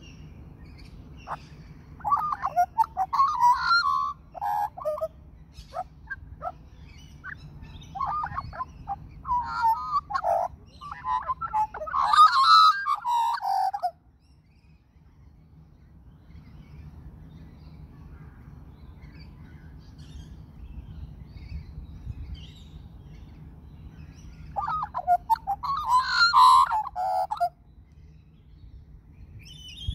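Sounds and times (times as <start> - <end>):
magpie singing: 0.0 - 14.0, 23.8 - 27.8.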